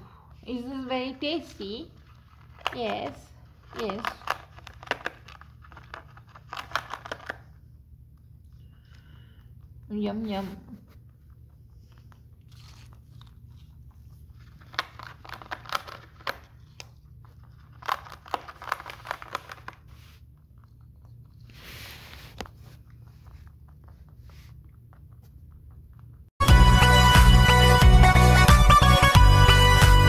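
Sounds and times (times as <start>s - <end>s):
low steady hum: 0.0s - 26.3s
rabbits gnawing: 0.4s - 26.4s
soft rustle: 21.3s - 24.7s.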